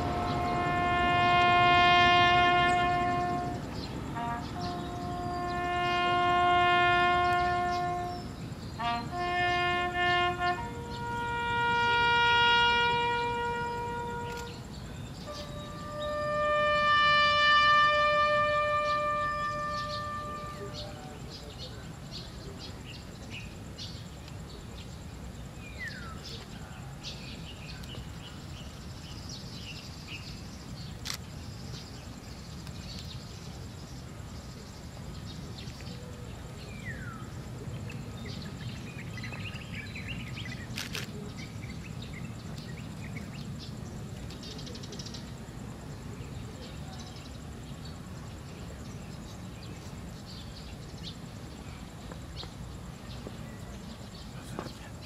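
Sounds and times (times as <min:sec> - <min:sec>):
steady low rumble: 0:00.0 - 0:05.7
birds chirping: 0:00.0 - 0:55.0.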